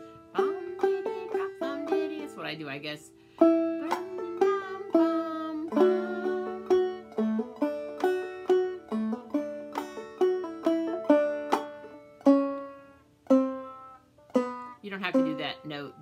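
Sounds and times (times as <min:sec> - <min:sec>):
banjo plucked notes: 0:00.0 - 0:16.0.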